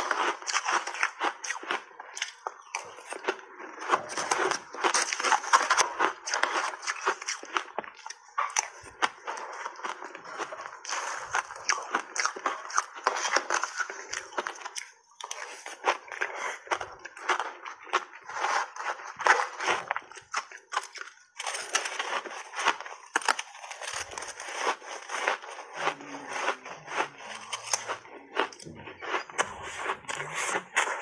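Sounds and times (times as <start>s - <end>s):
ice being bitten and chewed: 0.0s - 31.0s.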